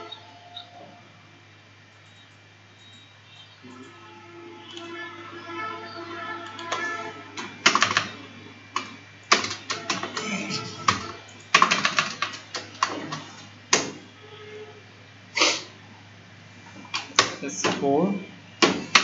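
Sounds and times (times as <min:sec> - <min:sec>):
faint music: 0:00.0 - 0:13.4
keyboard typing clicks: 0:06.4 - 0:08.2, 0:08.8 - 0:13.2.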